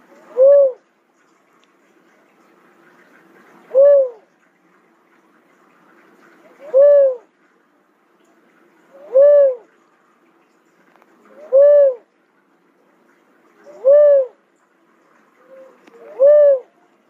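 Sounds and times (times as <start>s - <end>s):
dove hooting calls: 0.2s - 0.9s, 3.7s - 4.2s, 6.6s - 7.3s, 9.0s - 9.7s, 11.3s - 12.1s, 13.7s - 14.4s, 15.4s - 16.8s.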